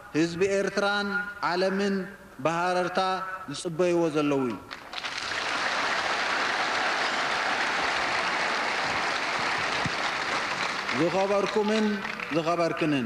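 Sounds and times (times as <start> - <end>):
large crowd applauding: 4.8 - 13.0.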